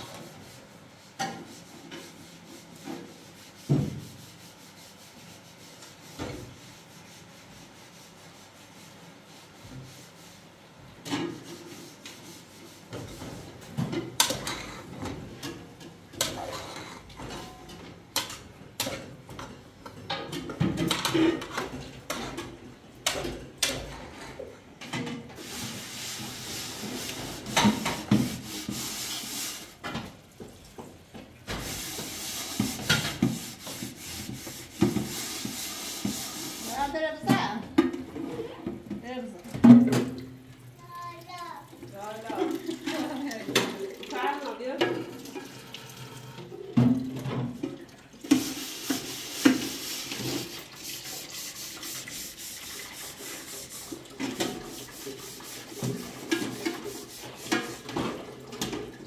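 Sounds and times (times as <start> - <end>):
pots and utensils clattering: 12.9 - 30.2, 31.4 - 40.2, 53.0 - 59.0.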